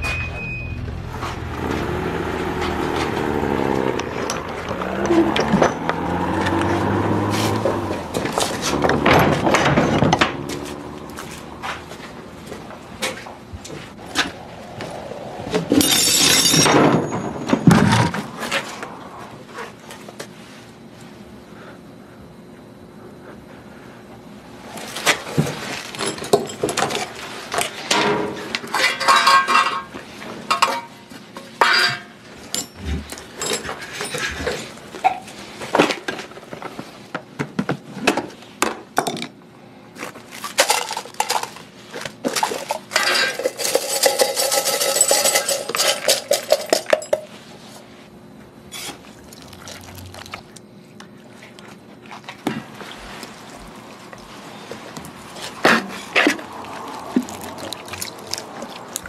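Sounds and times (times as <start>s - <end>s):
small hard objects clattering: 40.3s - 47.3s, 54.8s - 59.0s.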